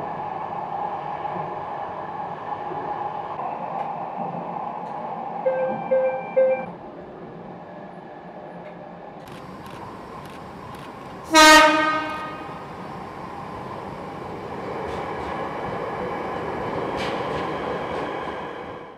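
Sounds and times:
train rumbling past: 0.0 - 18.9
train horn blast: 11.2 - 12.8.

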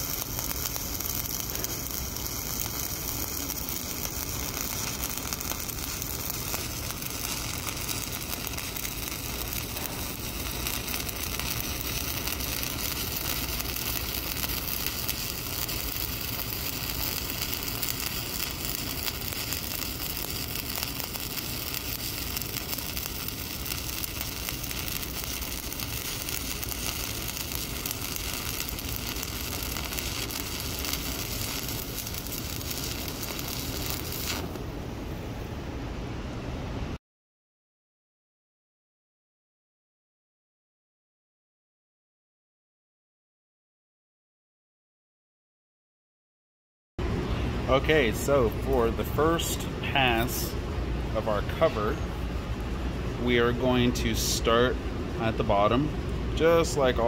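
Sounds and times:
welding arc crackling: 0.0 - 34.7.

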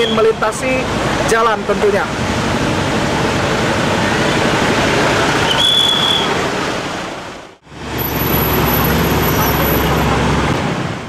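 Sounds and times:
traffic on flooded road: 0.0 - 11.0
high whistle-like tone: 5.4 - 6.4.

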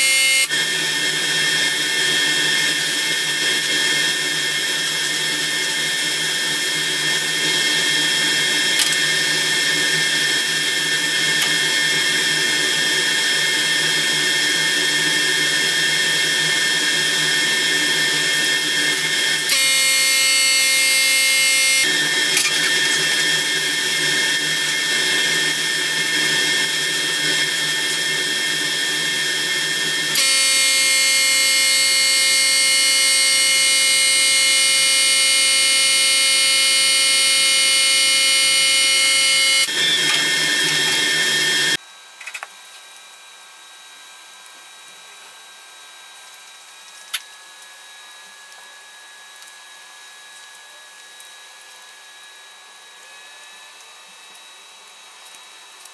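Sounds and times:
spray booth machine drone: 0.0 - 41.8.

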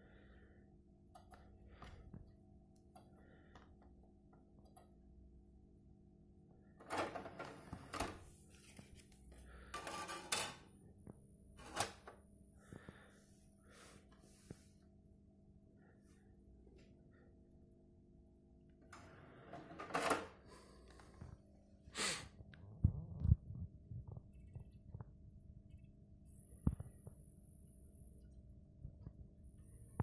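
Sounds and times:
motorised disc tray running: 6.8 - 8.2, 18.9 - 20.4.

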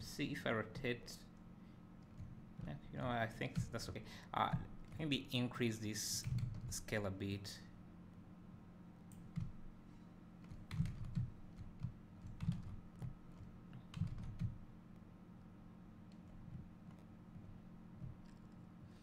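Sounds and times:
faint steady hum: 0.0 - 19.0
keyboard and mouse clicks: 10.4 - 14.6.

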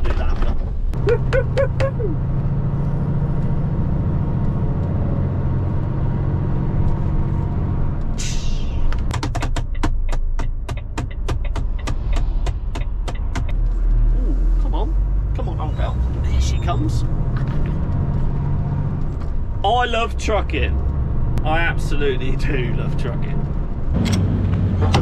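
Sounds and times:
air hiss: 8.2 - 8.9.

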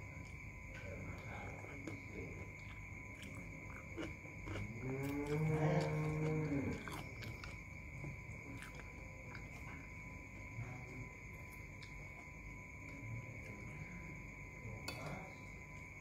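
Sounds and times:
person chewing and slurping: 1.7 - 7.6.

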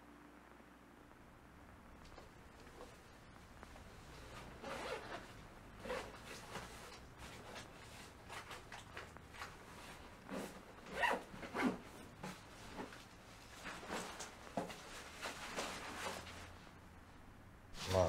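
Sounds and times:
clothes rustling: 2.1 - 16.8
zipper rasps: 4.1 - 13.0.

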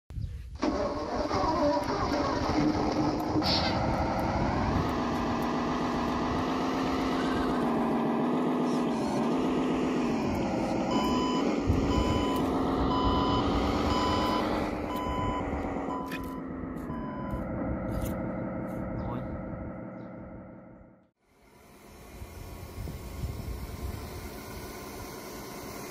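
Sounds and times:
model truck engine drone: 0.5 - 25.9
reversing beeps: 10.9 - 17.5.

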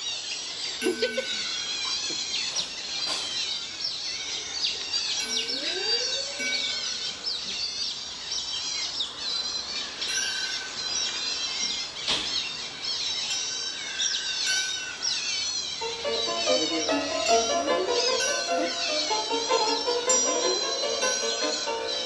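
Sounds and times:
birds chirping: 0.0 - 22.0.

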